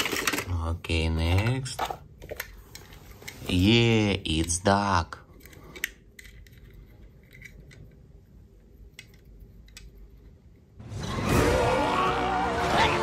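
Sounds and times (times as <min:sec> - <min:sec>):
loud music with voices: 0:10.9 - 0:13.0.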